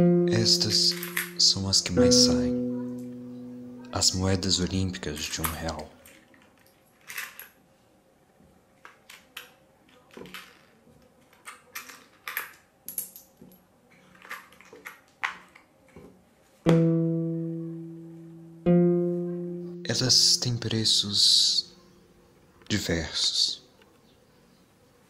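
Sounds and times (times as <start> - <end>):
plucked guitar note: 0.0 - 4.1, 16.7 - 20.6
coins clicking on table: 11.4 - 13.5.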